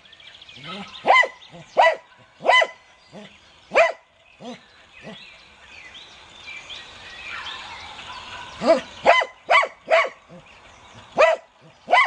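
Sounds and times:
dog barking: 0.6 - 2.8, 3.7 - 4.6, 8.6 - 10.3, 11.2 - 12.0.

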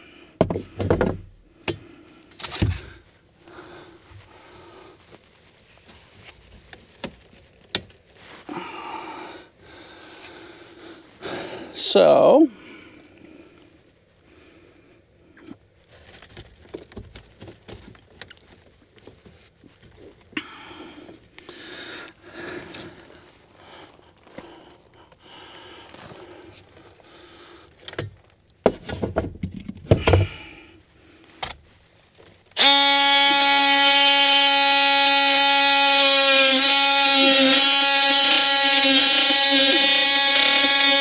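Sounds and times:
metal duct rustling and knocking: 0.4 - 1.4, 16.0 - 20.2, 27.9 - 30.4
power drill whining: 32.6 - 41.0.

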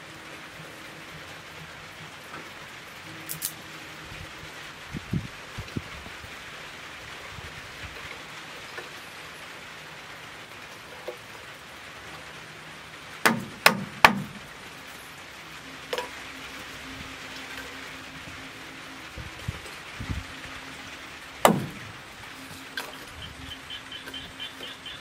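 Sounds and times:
steady hiss: 0.0 - 25.0
sharp knocks: 13.2 - 14.4, 21.4 - 21.9.

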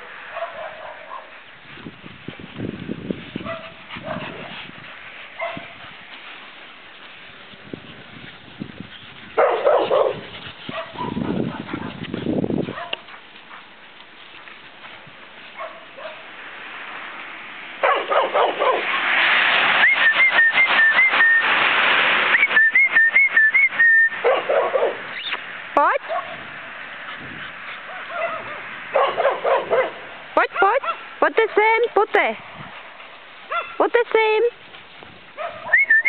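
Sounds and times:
dog and puppies yipping: 5.3 - 5.8, 8.9 - 12.1, 12.7 - 13.2, 17.8 - 19.1, 24.2 - 25.4, 27.0 - 30.0, 33.5 - 33.8, 35.4 - 36.0
loud rushing noise: 16.2 - 27.7
high whistled call: 19.8 - 21.7, 22.3 - 24.2, 25.1 - 25.4, 35.7 - 36.0.

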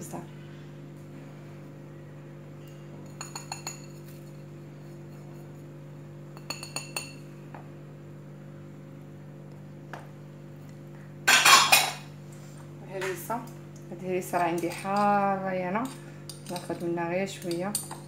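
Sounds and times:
dish clinking against bowl: 11.3 - 12.0.

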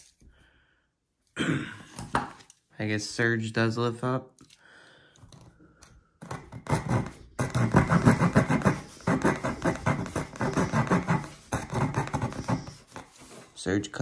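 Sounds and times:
saw rasping through wood: 6.2 - 13.4.

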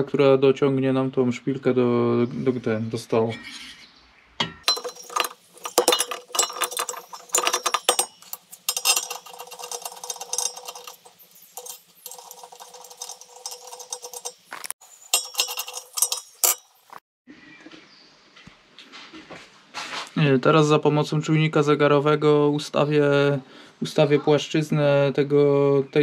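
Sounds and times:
metal tools clinking: 4.4 - 17.0.

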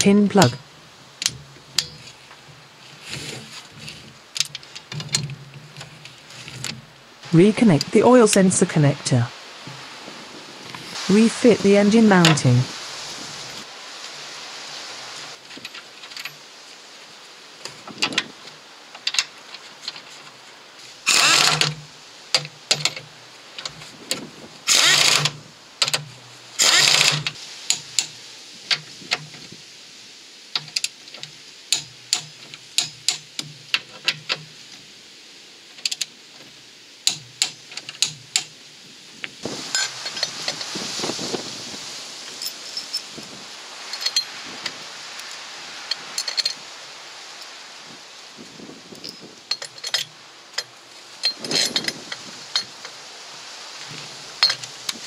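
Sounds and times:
metal parts clinking: 21.1 - 21.8, 43.9 - 44.3, 49.0 - 52.8
ratchet wrench ratcheting: 21.1 - 21.8, 24.7 - 26.0, 26.6 - 28.1
ratchet wrench sharp clicks: 26.6 - 28.1.

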